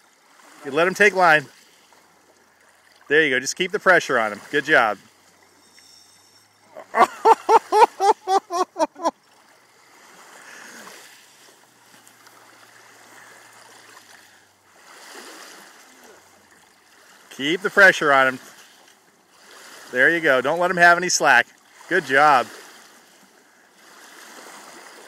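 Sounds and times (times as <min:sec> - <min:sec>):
water rushing at shoreline: 0:00.0 - 0:25.0
person laughing: 0:06.7 - 0:09.1.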